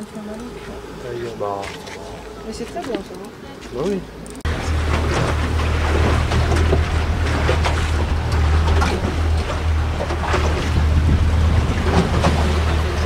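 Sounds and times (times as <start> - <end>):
motorboat motor droning: 0.0 - 13.0
water rushing along hull: 0.0 - 13.0
wind buffeting microphone: 4.4 - 13.0.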